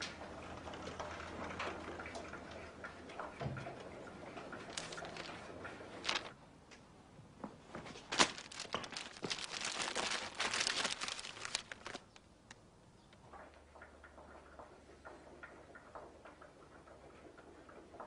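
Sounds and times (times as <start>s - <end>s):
paper crinkling and rustling: 4.6s - 6.4s, 7.8s - 12.2s.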